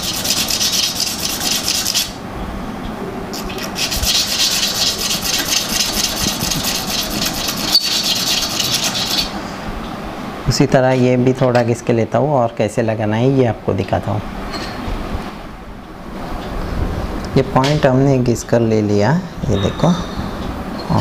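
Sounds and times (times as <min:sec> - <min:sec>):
metal scraping on abrasive paper: 0:00.0 - 0:02.2, 0:03.4 - 0:09.4.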